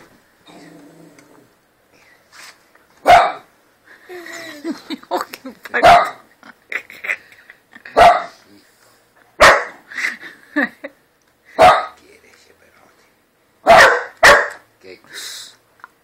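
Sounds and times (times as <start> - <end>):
dog barking: 3.0 - 3.5, 5.8 - 6.2, 8.0 - 8.4, 9.4 - 9.8, 11.6 - 12.0, 13.6 - 14.6.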